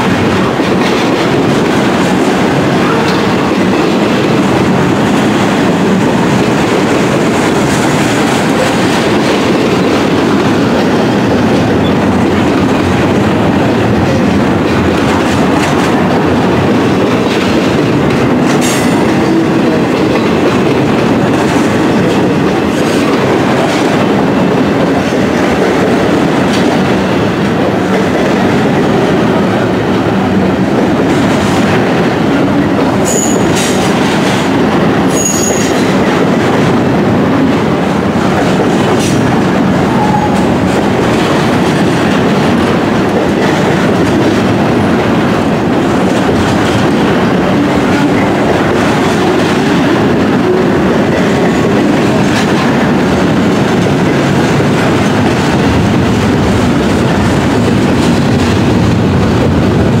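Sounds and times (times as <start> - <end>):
train wheels rumbling on rails: 0.0 - 60.0
high-pitched wheel squeals: 35.1 - 35.7.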